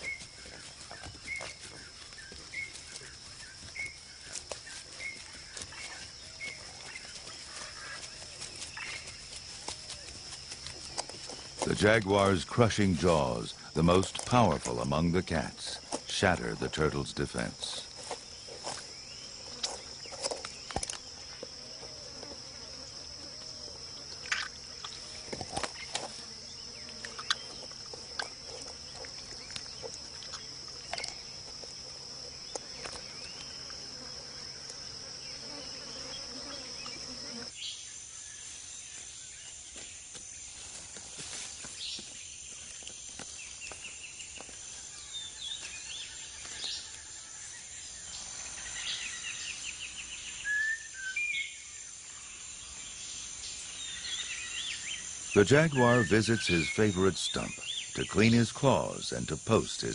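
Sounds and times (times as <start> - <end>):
insects buzzing drone: 0.0 - 59.9
bird chirps: 47.6 - 51.8, 52.6 - 59.9.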